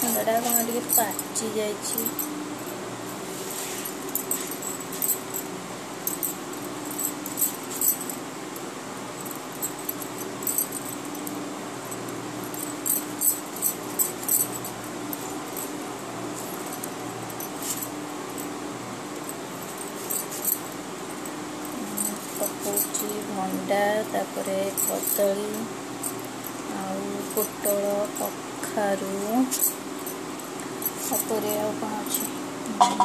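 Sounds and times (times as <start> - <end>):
faint steady hum: 0.0 - 33.0
glass bangles knocking: 32.2 - 33.0.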